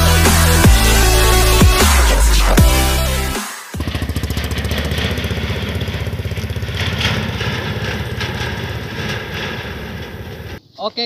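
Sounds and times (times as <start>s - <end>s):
motorcycle engine running: 0.0s - 10.6s.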